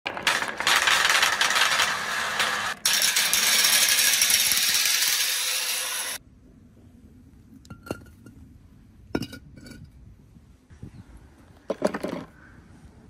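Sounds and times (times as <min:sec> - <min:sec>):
balls rattling down metal rail: 0:00.1 - 0:06.2.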